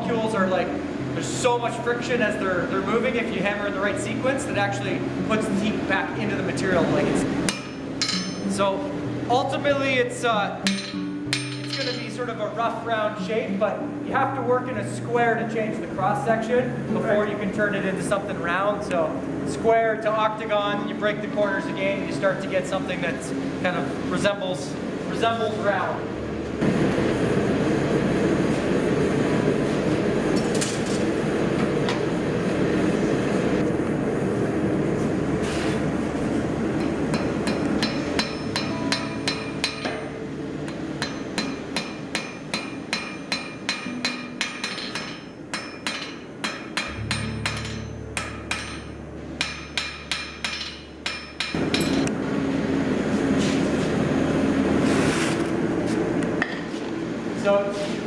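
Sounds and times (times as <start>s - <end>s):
hammer ringing on anvil: 7.5s - 8.6s, 10.6s - 12.2s, 36.8s - 52.1s.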